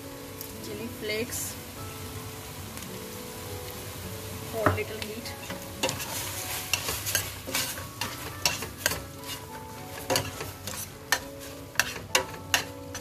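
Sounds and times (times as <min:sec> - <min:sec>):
light sizzle of frying: 0:00.0 - 0:13.0
metal spoon scraping a pot: 0:05.8 - 0:13.0.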